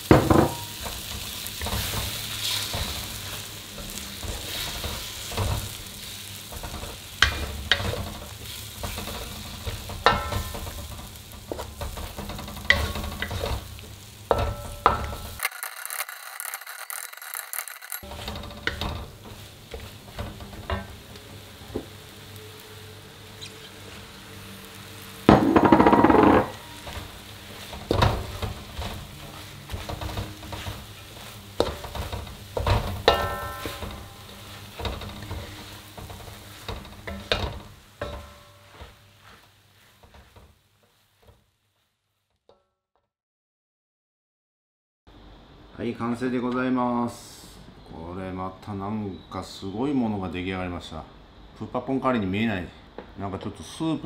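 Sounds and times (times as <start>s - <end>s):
spatula scraping in a wok: 0.0s - 42.0s
food sizzling: 0.0s - 42.3s.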